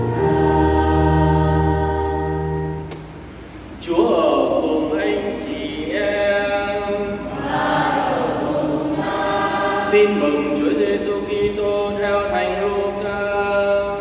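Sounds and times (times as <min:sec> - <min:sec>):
voices singing liturgical chant: 0:00.0 - 0:02.4, 0:04.5 - 0:12.6.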